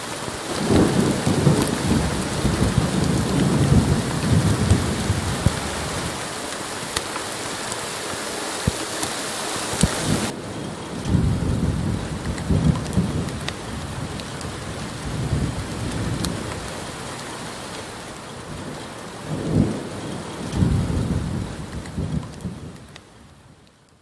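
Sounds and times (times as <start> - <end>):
rolling thunder: 0.0 - 6.4, 10.0 - 16.9, 18.4 - 22.8
steady rain: 0.0 - 24.0
raindrop ticks: 0.4 - 24.0.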